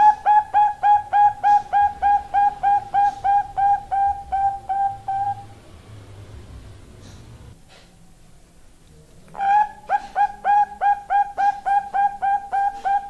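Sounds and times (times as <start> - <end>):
dove cooing: 0.0 - 5.6, 9.3 - 13.0.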